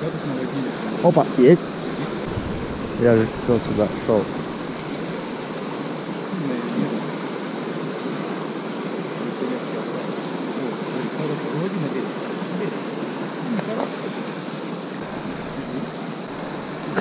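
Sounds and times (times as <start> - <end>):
river water rushing: 0.4 - 11.1, 11.9 - 17.0.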